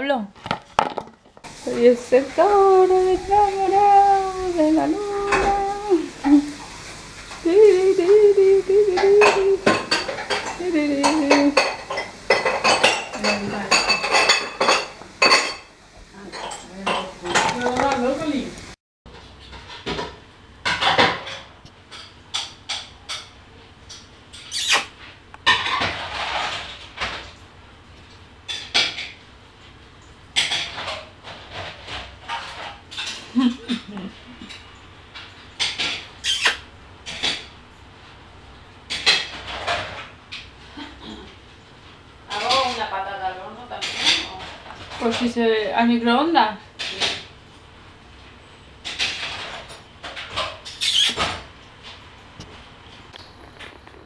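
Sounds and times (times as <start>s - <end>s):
cupboard doors and dishes clattering: 2.4s - 7.0s, 8.0s - 18.4s, 19.2s - 23.4s, 25.4s - 27.4s, 30.4s - 36.2s, 38.9s - 40.2s.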